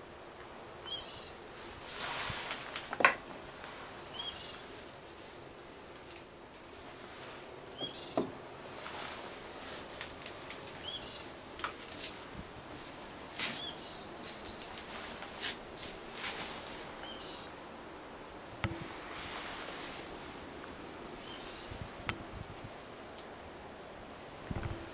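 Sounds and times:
bird chirping: 0.0 - 1.4, 4.1 - 5.5, 7.8 - 8.3, 10.8 - 11.3, 13.6 - 14.8, 17.0 - 17.6
handling rustles: 1.6 - 13.7, 14.7 - 17.0.

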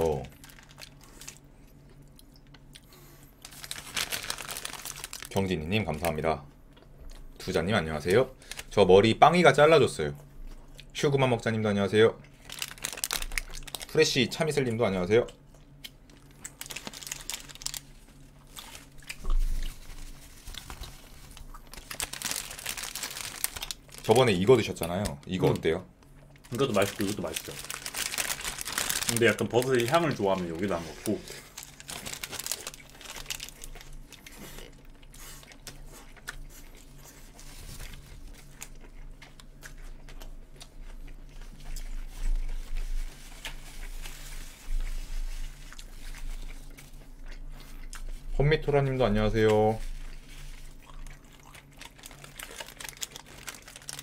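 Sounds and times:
paper wrapper rustling: 0.0 - 1.4, 3.4 - 6.1, 12.4 - 14.0, 16.2 - 25.8, 26.4 - 34.4, 37.1 - 38.7, 41.7 - 46.8, 51.6 - 54.0
steady low hum: 0.0 - 54.0
biting and chewing: 15.4 - 44.9, 49.4 - 54.0
chewing and biting: 31.1 - 42.8, 50.0 - 54.0.

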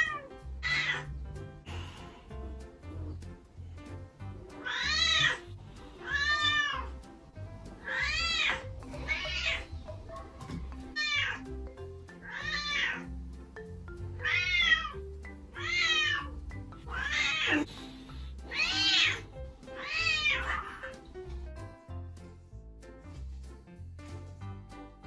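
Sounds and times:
background music: 0.0 - 25.0
kitten meowing: 4.6 - 5.4, 7.8 - 9.7, 12.2 - 13.1, 15.6 - 17.7, 18.5 - 19.2.

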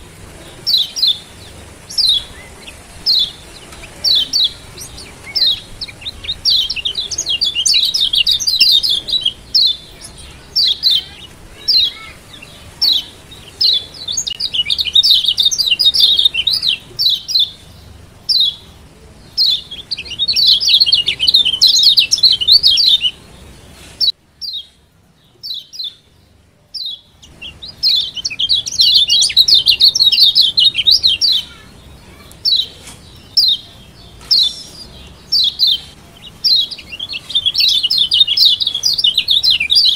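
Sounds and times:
bird rapid chattering: 0.0 - 17.7, 26.8 - 39.9
bird sharp high calls: 0.0 - 17.7, 26.8 - 39.9.

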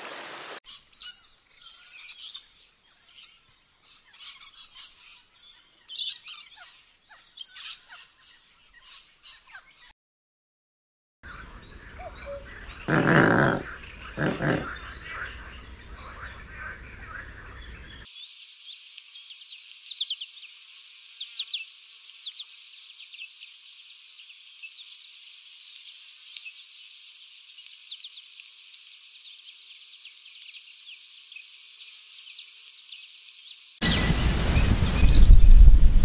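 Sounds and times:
small birds chirping: 0.7 - 9.9, 11.2 - 35.7
wind noise on microphone: 33.8 - 36.0.

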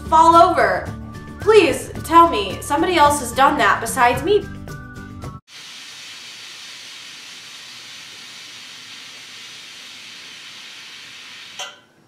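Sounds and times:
steam radiator hissing: 5.5 - 11.6.

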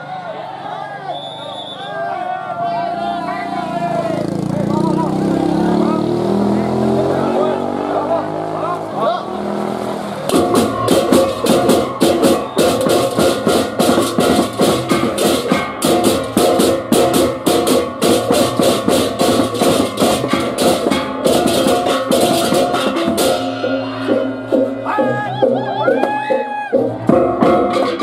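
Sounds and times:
hand cymbals clashing: 10.3 - 24.9
gong-chimes and drums: 10.3 - 28.0.

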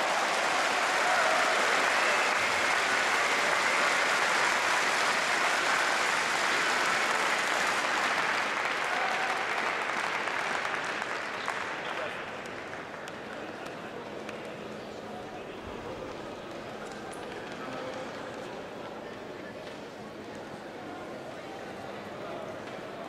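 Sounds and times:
crowd applauding: 0.0 - 14.5.

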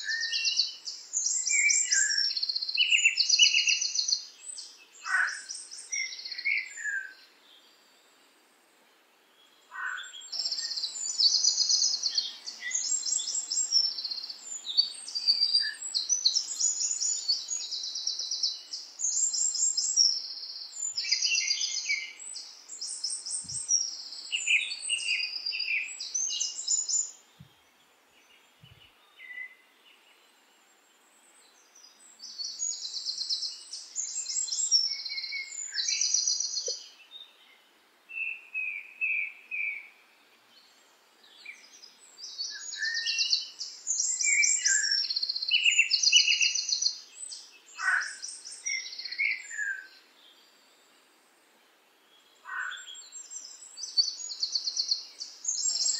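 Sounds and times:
songbirds trilling: 0.0 - 7.9, 9.4 - 30.4, 31.4 - 37.6, 40.6 - 50.7, 52.2 - 55.9.

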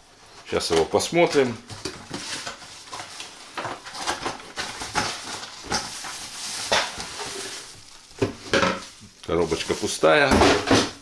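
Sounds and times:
rustling: 0.1 - 11.0
plastic jug knocking and clattering: 8.2 - 8.9, 10.2 - 11.0.

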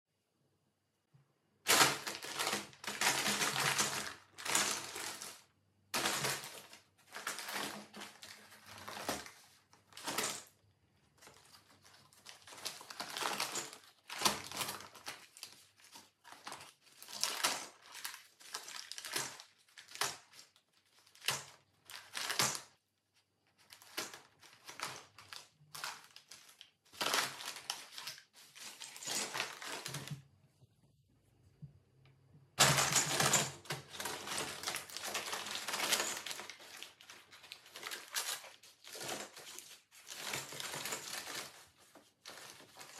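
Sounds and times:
paper bag crinkling: 1.7 - 10.4, 32.6 - 42.9.

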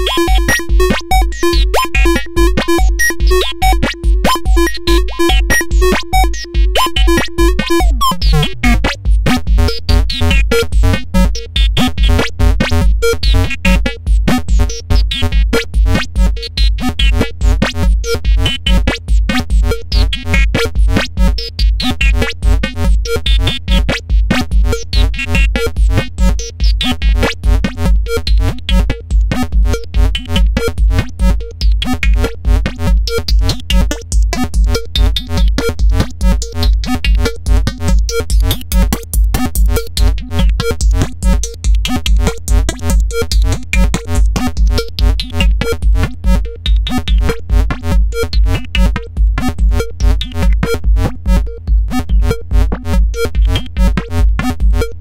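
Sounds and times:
synthesizer electronic sequence: 0.0 - 9.4
fast clicking rhythm: 0.0 - 55.0.

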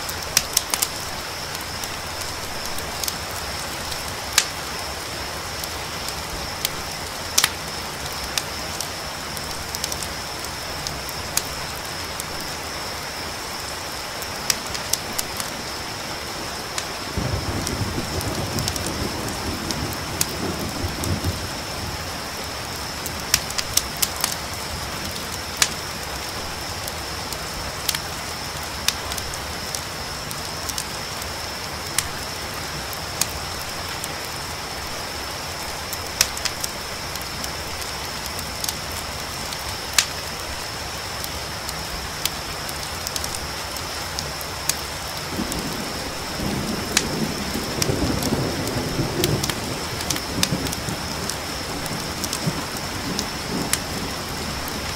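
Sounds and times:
campfire crackling and popping: 0.0 - 15.8, 16.5 - 54.9
cricket trill: 0.0 - 54.9
rain hissing: 0.0 - 54.9
distant thunder rumble: 17.1 - 25.7, 45.3 - 54.9.

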